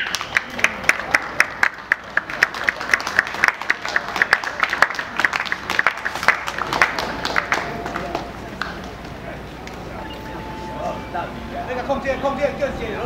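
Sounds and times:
group clapping hands: 0.0 - 9.2.

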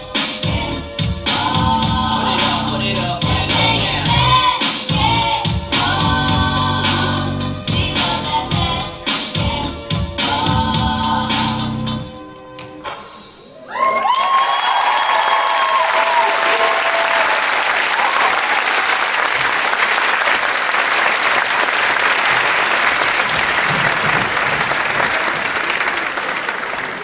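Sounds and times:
audience applauding: 13.7 - 27.0.

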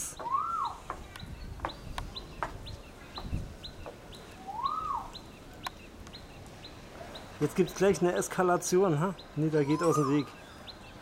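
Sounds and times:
bird chirping: 0.0 - 11.0
bird whistle rising and falling: 0.1 - 0.8, 4.4 - 5.2, 9.5 - 10.7.

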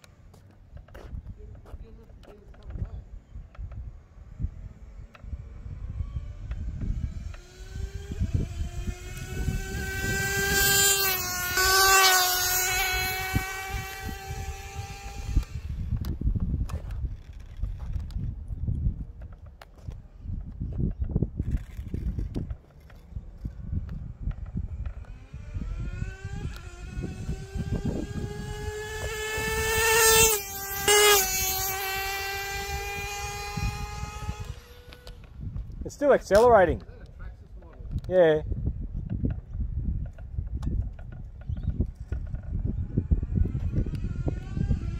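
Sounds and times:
rc car engine high-pitched whine: 2.7 - 18.3, 21.4 - 36.4, 41.2 - 44.9.

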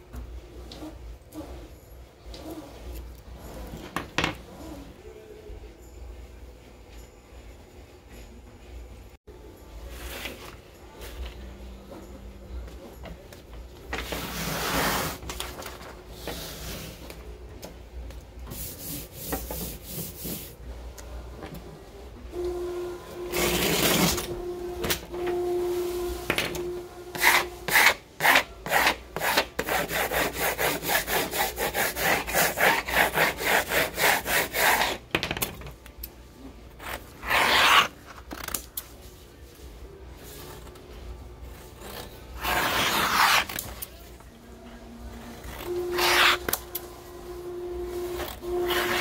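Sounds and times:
hand rubbing tape on vinyl: 22.4 - 35.0.

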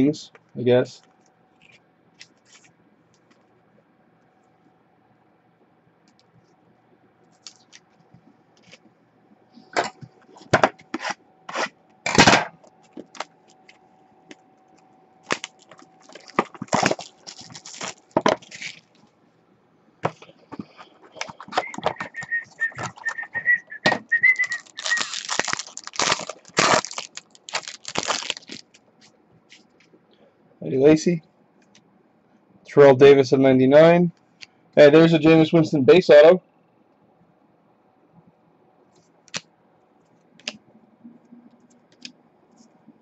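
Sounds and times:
cards and wrapper crackling: 7.3 - 7.8, 15.2 - 19.0, 20.6 - 28.8
wavering high whistle tone: 21.5 - 25.2.

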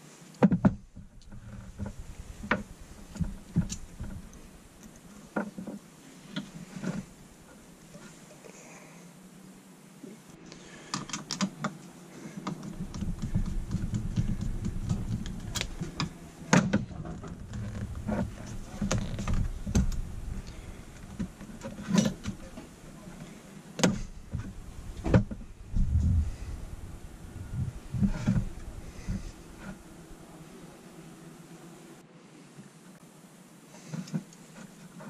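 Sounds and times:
low rubbing rumble: 0.8 - 5.0, 12.7 - 30.8.

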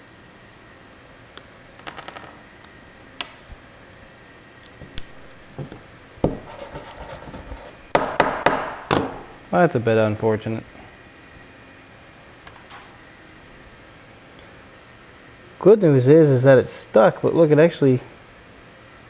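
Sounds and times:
hand tool scraping a build sheet: 6.3 - 7.8.

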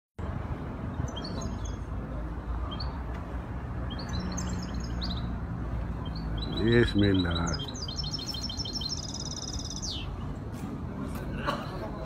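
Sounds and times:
songbirds twittering: 0.8 - 10.4.

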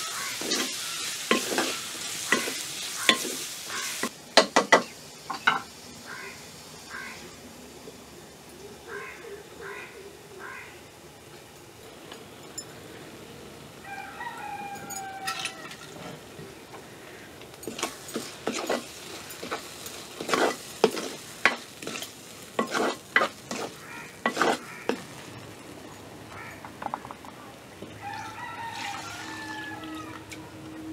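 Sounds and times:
utensil scraping in pan: 0.0 - 4.1, 17.6 - 25.3
food frying sizzle: 0.0 - 9.2, 11.2 - 30.9
rooster crowing: 13.8 - 16.0, 27.9 - 30.9.

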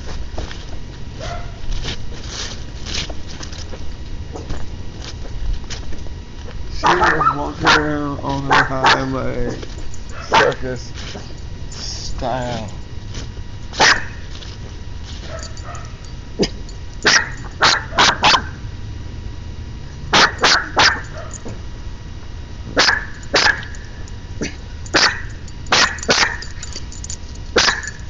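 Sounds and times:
dog barking: 1.2 - 1.6, 6.8 - 9.1, 10.1 - 10.6, 13.8 - 14.2, 15.2 - 16.0, 17.0 - 18.6, 20.1 - 21.4, 22.8 - 23.8, 24.4 - 26.5, 27.5 - 28.0.

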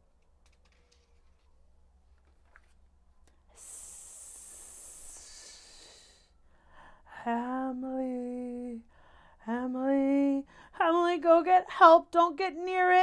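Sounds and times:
person hissing with mouth: 3.5 - 6.3.

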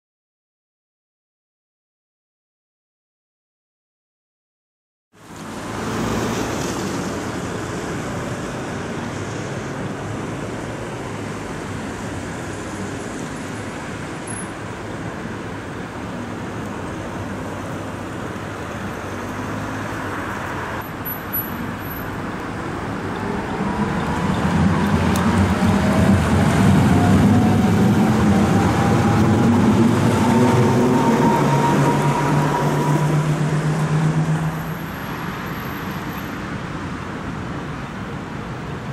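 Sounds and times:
road traffic: 5.1 - 38.9
electric tram passing: 5.2 - 38.9
tram motor whine: 23.1 - 34.8.

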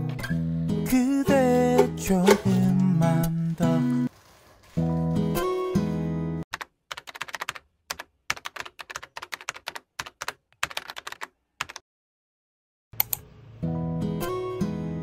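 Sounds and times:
keyboard typing: 6.5 - 11.8.

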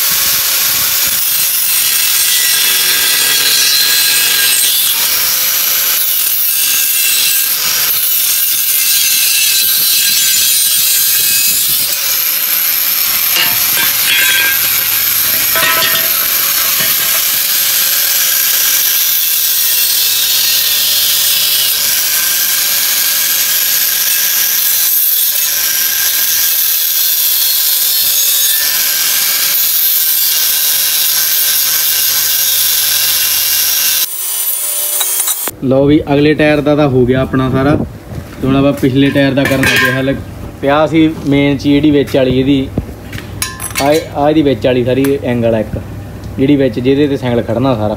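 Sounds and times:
angle grinder cutting steel: 0.0 - 35.6.

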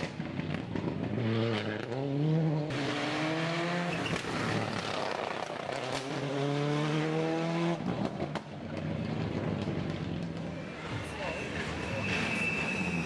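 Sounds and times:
rally car engine revving: 0.1 - 10.2.

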